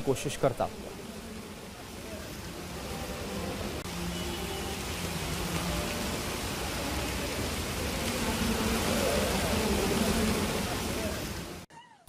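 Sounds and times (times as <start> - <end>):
floodwater rushing: 0.0 - 11.7
heavy rain on a street: 0.0 - 11.7.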